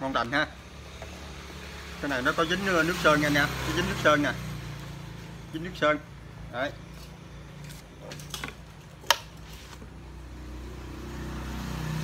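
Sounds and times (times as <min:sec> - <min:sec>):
handling knocks and clicks: 0:07.7 - 0:09.4.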